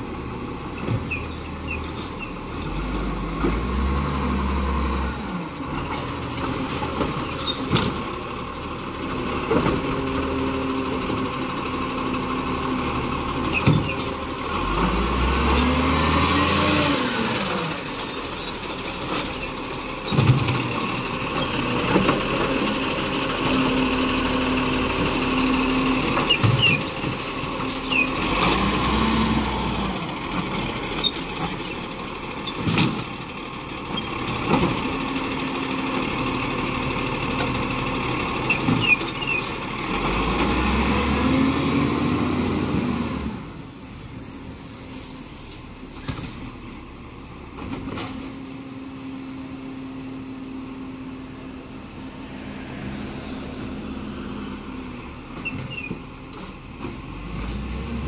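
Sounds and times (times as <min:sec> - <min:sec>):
garbage truck engine revving: 0:12.0 - 0:18.3, 0:19.1 - 0:33.0, 0:33.9 - 0:44.4.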